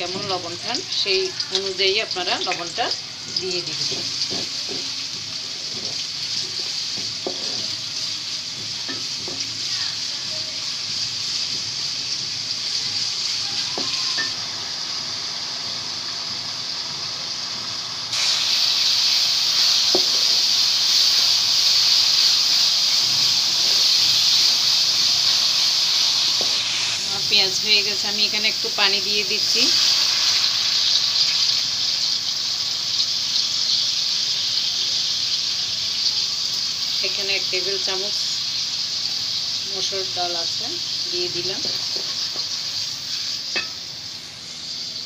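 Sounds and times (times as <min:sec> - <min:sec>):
onions sizzling in hot oil: 0:00.0 - 0:45.0
wooden spoon scraping and knocking: 0:05.5 - 0:07.8.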